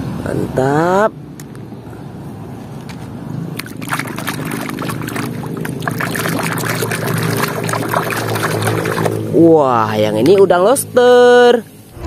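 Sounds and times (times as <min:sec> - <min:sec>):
water splashing and sloshing: 0:03.5 - 0:09.4.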